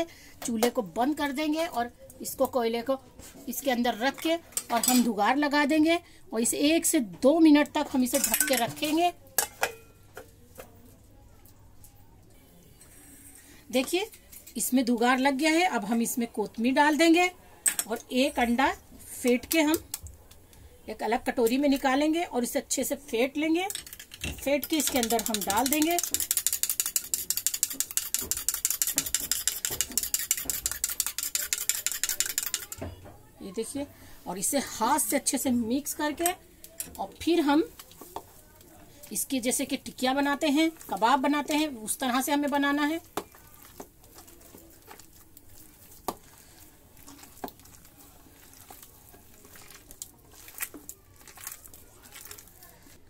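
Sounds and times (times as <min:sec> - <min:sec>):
whisk clicking against bowl: 0:23.7 - 0:32.8
wet squishing of meat mixture: 0:42.1 - 0:53.0.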